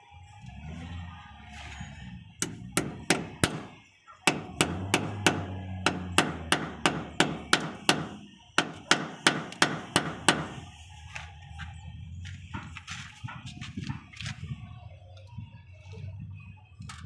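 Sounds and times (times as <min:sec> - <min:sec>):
hammer tapping moulding: 0:02.4 - 0:03.7, 0:04.3 - 0:10.6.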